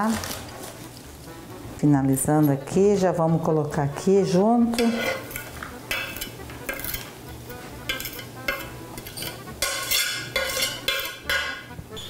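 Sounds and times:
knife scraping cutting board: 4.8 - 7.1, 7.9 - 11.3.

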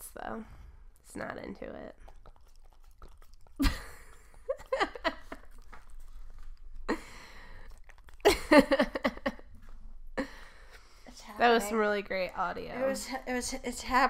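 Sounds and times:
dog licking wet lapping: 1.6 - 9.2.

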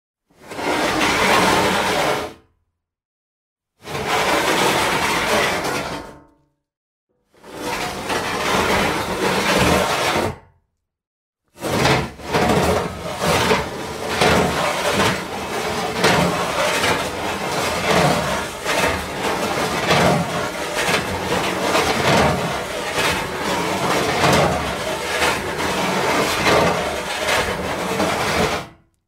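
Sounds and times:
metal sheets scraping together: 7.5 - 10.4, 11.6 - 28.8.

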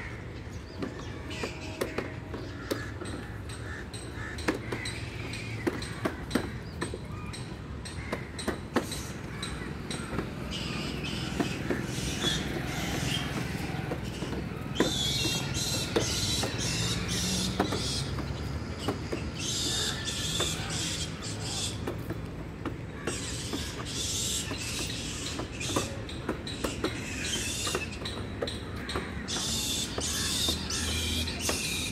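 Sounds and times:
tricycle creaking and squeaking: 0.0 - 31.9
plastic wheels rolling on bricks: 9.7 - 19.8.

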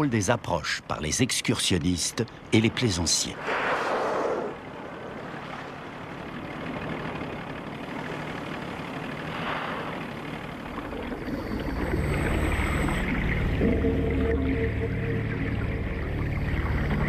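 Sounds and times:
boat engine running: 0.0 - 17.0
wind and water hiss: 2.2 - 7.2, 8.1 - 13.4
music with low held tones: 11.2 - 17.0.

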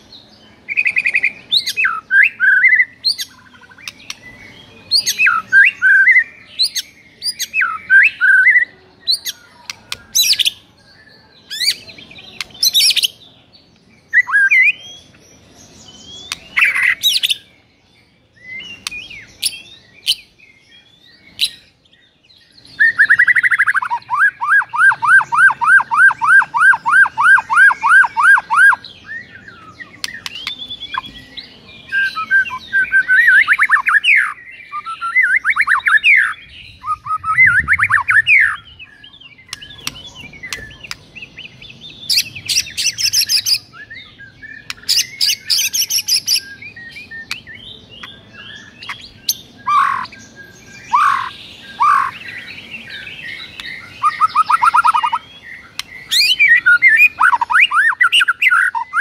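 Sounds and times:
bird singing whistled song: 0.0 - 59.0
harsh rasping bird calls: 22.8 - 31.1, 32.0 - 59.0.

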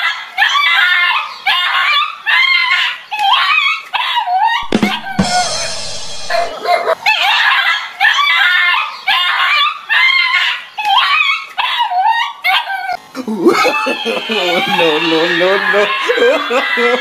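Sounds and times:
dog barking and yelping: 5.8 - 13.0.

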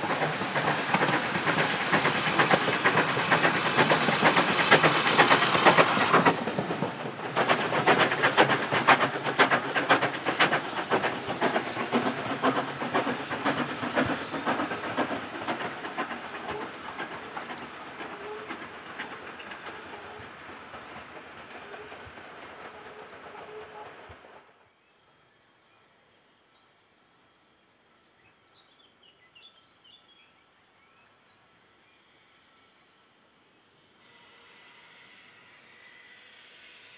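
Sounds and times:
train wheels clicking over rail joints: 0.0 - 24.3
steam hissing: 0.0 - 24.5, 33.8 - 36.9.

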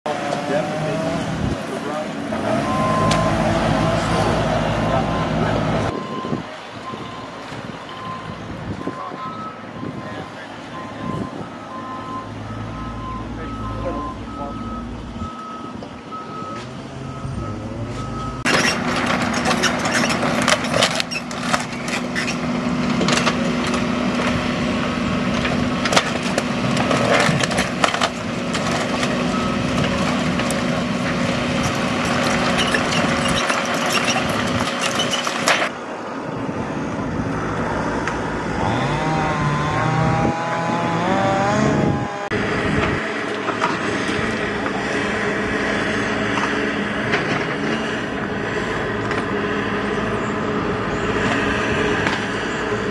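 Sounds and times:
excavator engine running: 0.3 - 52.9
knocks and clanks of metal and wood: 18.4 - 24.4, 25.3 - 35.7.

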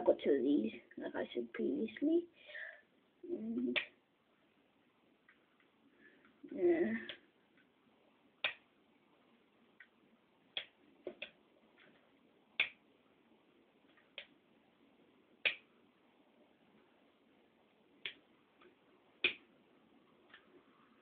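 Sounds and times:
faint steady background noise: 0.0 - 21.0.

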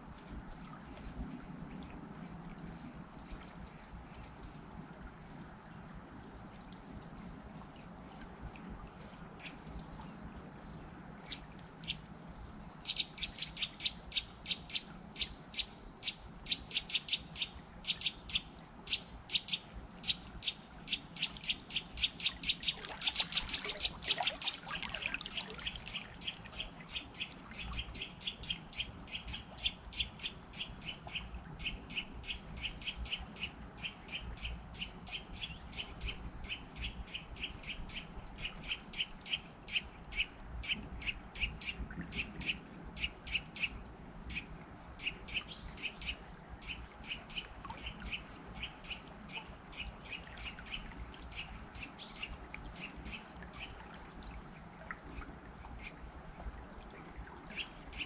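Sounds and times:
small birds chirping: 11.3 - 33.5
river flowing: 17.5 - 30.3.

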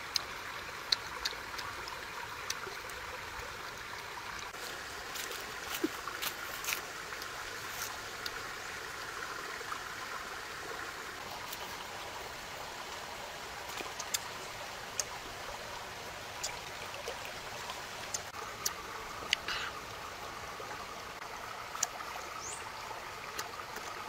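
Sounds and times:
mouth smacks and clicks eating: 0.1 - 3.0, 13.7 - 14.3, 16.4 - 16.6, 18.0 - 19.6, 23.3 - 24.0.

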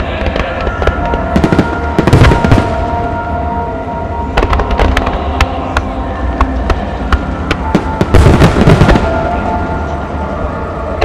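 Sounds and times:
fireworks bangs and pops: 0.1 - 2.8, 4.4 - 5.2, 6.7 - 9.2
deep firework boom: 7.7 - 9.4.

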